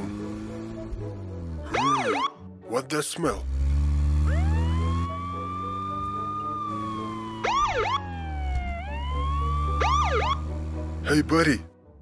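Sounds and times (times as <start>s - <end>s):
siren whoops: 1.7s - 2.4s, 4.3s - 10.4s
police siren wailing: 1.7s - 2.5s, 4.2s - 10.6s.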